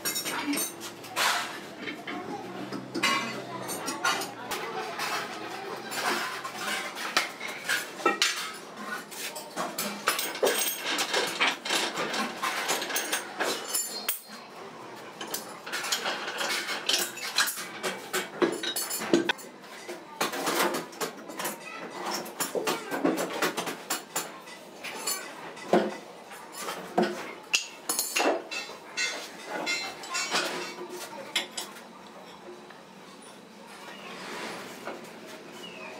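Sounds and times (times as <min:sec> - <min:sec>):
metal parts clinking and clanking: 0:09.8 - 0:14.4, 0:15.2 - 0:19.4.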